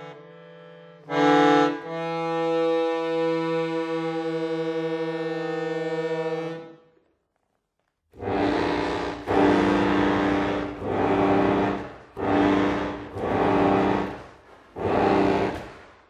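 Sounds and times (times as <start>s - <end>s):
accordion sustained chord: 0.0s - 6.9s, 8.2s - 15.8s.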